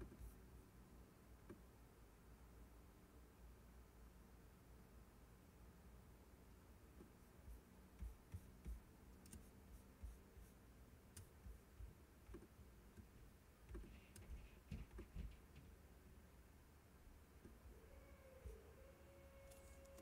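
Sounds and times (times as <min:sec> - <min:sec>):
faint clicks and taps: 0:07.0 - 0:15.8.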